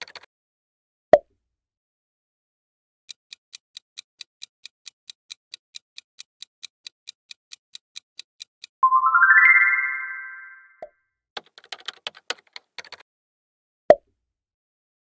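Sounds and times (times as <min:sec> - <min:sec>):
clock ticking quickly: 0:03.1 - 0:08.8.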